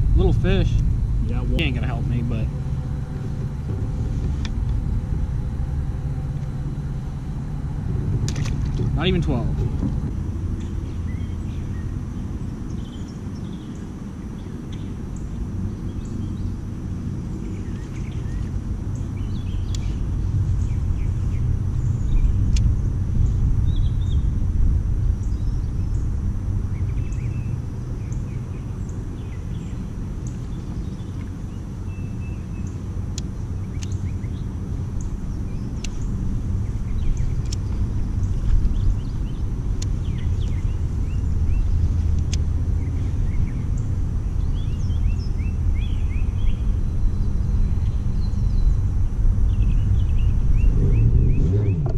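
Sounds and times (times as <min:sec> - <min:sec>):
wind rumble on microphone: 0:00.0 - 0:51.9.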